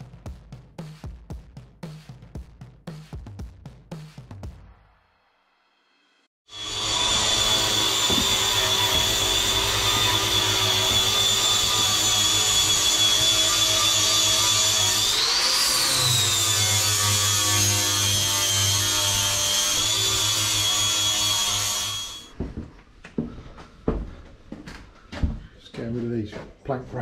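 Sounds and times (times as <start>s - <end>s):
power tool whining: 6.5s - 22.3s.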